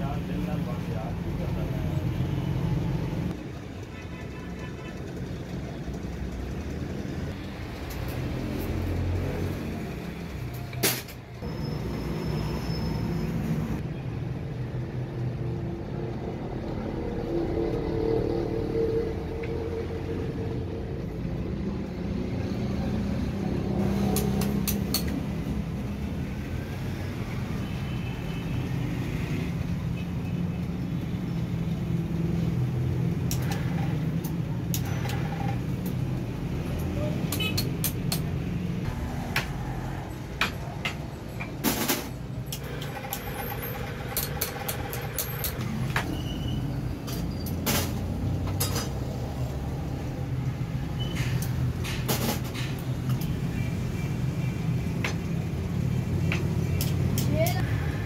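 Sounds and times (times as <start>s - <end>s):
clicks and taps of hand tools: 24.1s - 25.2s, 36.8s - 38.4s, 56.2s - 57.6s.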